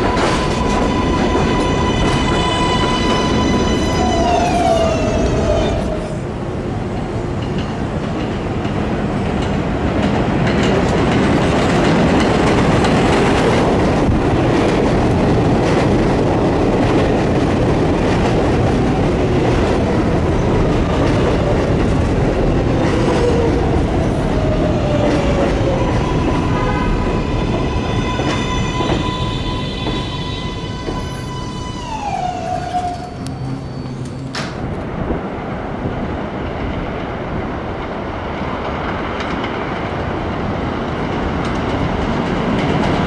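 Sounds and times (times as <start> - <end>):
train whine falling in pitch: 0.0 - 6.3, 24.8 - 34.8
subway train running on track: 0.0 - 43.0.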